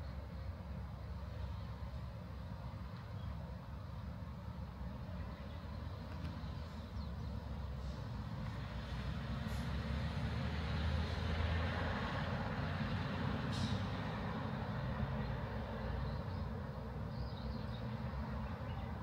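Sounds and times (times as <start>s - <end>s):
vehicle passing: 8.6s - 16.2s.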